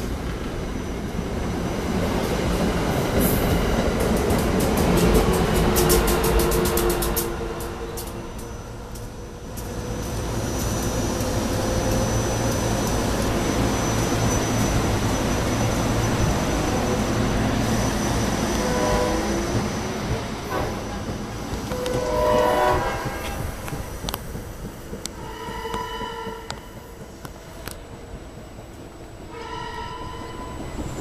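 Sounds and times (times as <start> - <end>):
train rumbling past: 0.0 - 31.0
train horn notes: 18.6 - 19.5, 20.5 - 21.1, 21.7 - 23.7, 25.1 - 26.8, 29.3 - 30.6.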